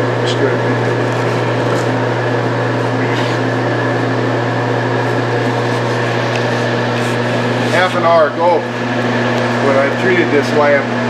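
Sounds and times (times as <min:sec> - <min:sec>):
mechanical hum with steady tones: 0:00.0 - 0:11.0.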